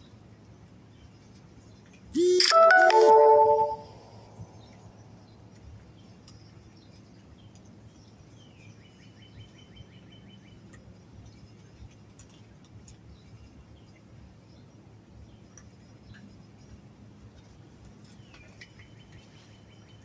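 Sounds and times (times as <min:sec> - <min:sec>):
high chirping trill: 0:02.2 - 0:04.4.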